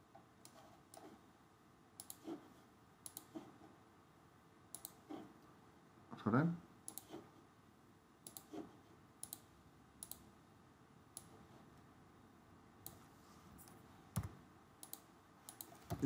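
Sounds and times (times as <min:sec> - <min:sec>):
computer mouse clicking: 0:02.0 - 0:02.4, 0:03.0 - 0:03.5, 0:04.7 - 0:05.2, 0:06.9 - 0:07.2, 0:08.2 - 0:10.3, 0:11.2 - 0:11.4, 0:12.8 - 0:13.0, 0:13.6 - 0:16.0.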